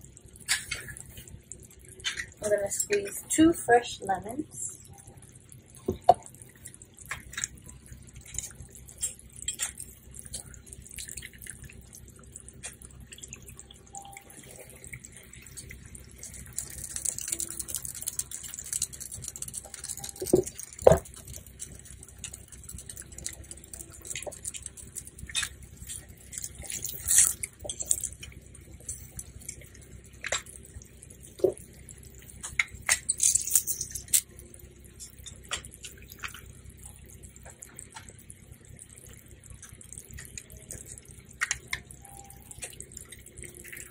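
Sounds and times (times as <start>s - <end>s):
juice dripping into hot sauce: 0.0s - 43.9s
small ticks and clicks: 0.0s - 43.9s
steady low hum: 0.0s - 43.9s.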